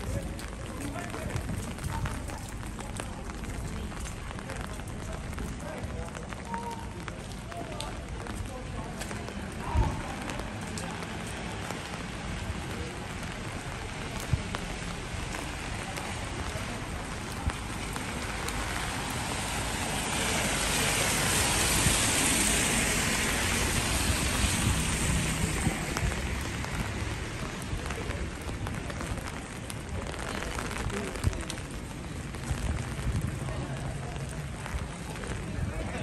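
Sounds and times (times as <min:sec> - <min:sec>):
city street hiss: 0:00.0 - 0:36.0.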